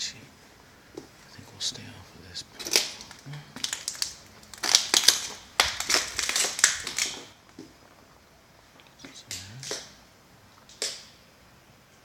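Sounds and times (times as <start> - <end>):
footsteps crunching on dry leaves: 2.7 - 8.1.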